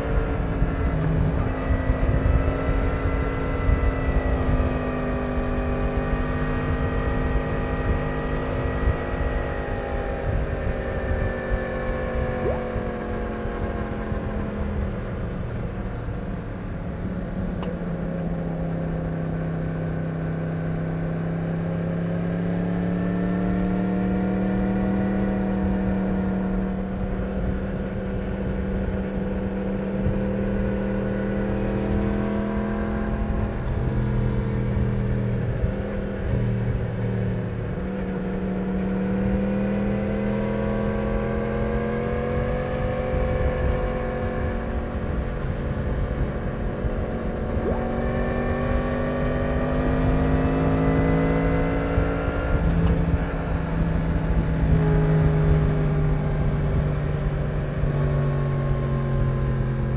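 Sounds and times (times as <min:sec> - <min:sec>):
motorcycle engine revving: 0:17.6 - 0:59.9.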